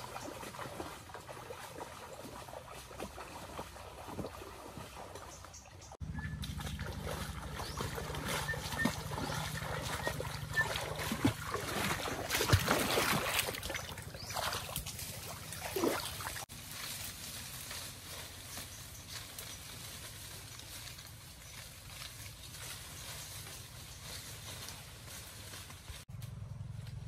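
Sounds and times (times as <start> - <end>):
splashing footsteps wading stream: 0.0 - 25.8
low steady rumble: 5.8 - 12.2, 23.6 - 27.0.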